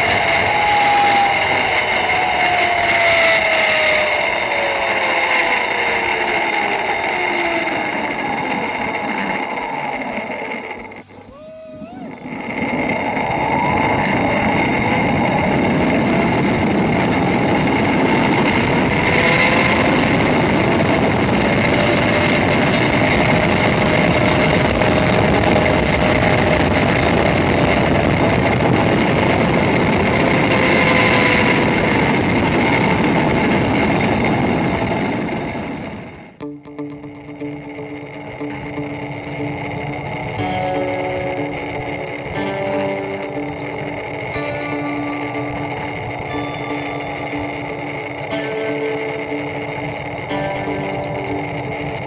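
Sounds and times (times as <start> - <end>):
wind rushing on microphone: 0.0 - 36.4
pulley wheels whining on steel cable: 0.0 - 52.0.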